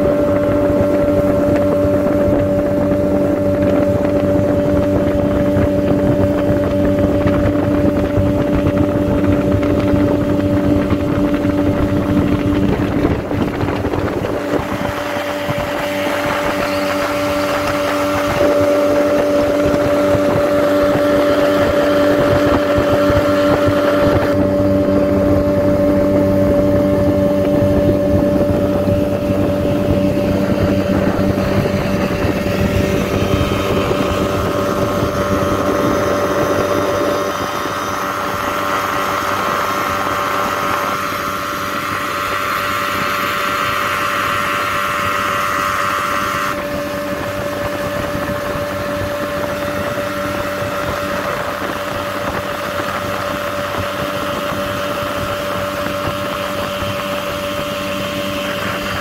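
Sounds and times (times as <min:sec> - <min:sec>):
motorboat engine humming: 0:00.0 - 0:59.0
water rushing: 0:00.0 - 0:59.0
wind noise: 0:00.0 - 0:59.0.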